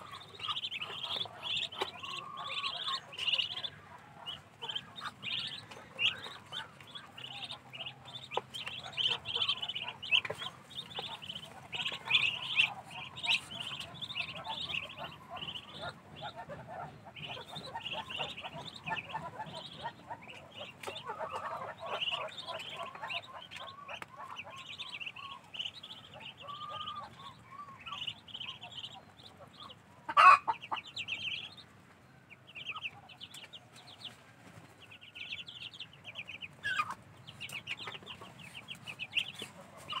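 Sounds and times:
lower-pitched duckling calls: 0.0 - 31.7, 32.3 - 34.2, 34.8 - 40.0
ducklings peeping: 0.0 - 40.0.

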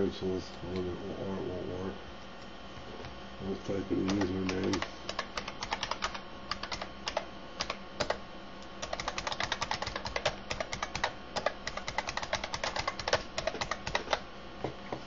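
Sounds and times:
computer keyboard typing: 4.0 - 8.2, 8.8 - 14.2.

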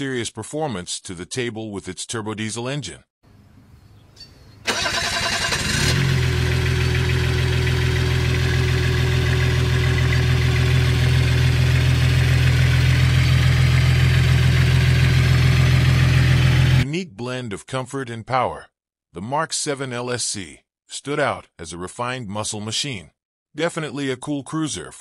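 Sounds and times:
starter cranking: 4.7 - 7.1
car engine idling: 4.7 - 16.8.

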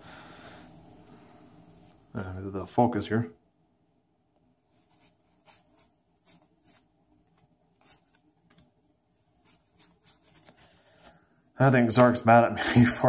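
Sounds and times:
cards sliding and flipping: 9.5 - 11.2.

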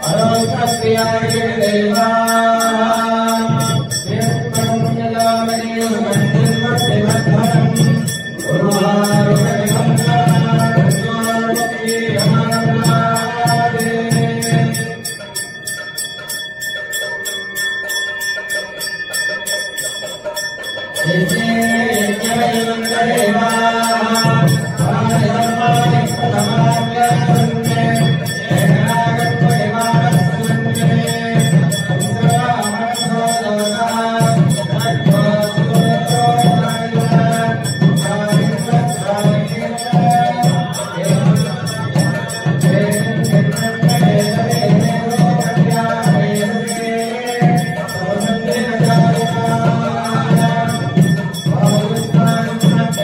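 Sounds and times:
men chanting: 0.0 - 15.5, 21.0 - 53.0
fast even ringing: 0.0 - 53.0
steady high tone: 0.0 - 53.0.

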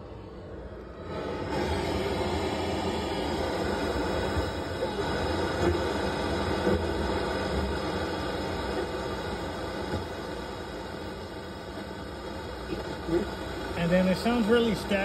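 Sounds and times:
car radio static: 12.6 - 15.0.

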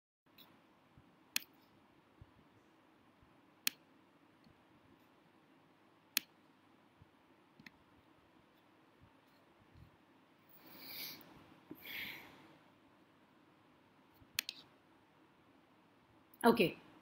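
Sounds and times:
sharp clicks: 14.3 - 14.6.

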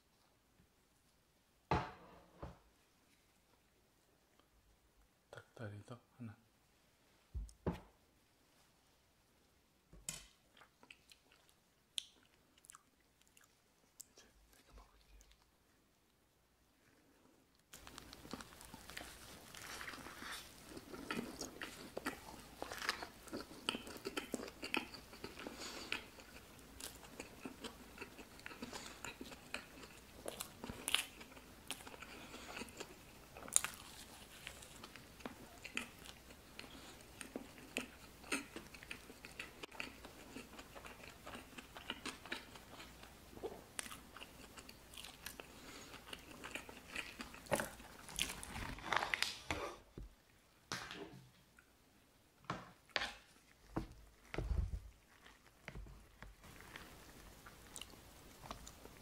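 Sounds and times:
person chewing crunchy food: 17.7 - 49.7, 53.0 - 59.0.

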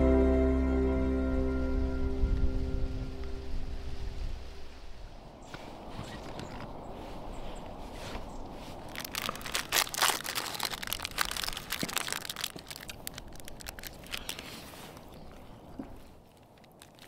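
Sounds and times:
plastic wrapper crinkling and tearing: 8.7 - 15.2, 16.0 - 17.0.

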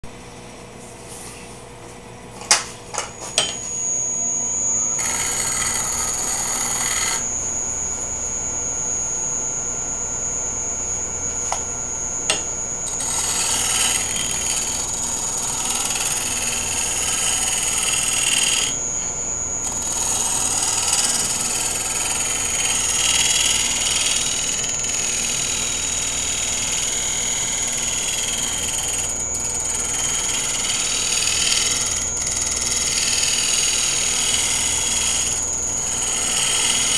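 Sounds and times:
wood lathe whining: 3.0 - 36.9
gouge scraping turning wood: 19.6 - 36.9.

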